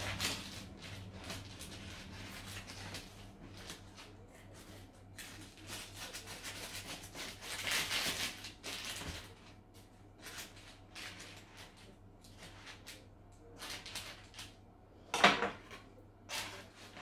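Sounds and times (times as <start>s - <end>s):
knife crunching through pastry crust: 0.0s - 9.1s.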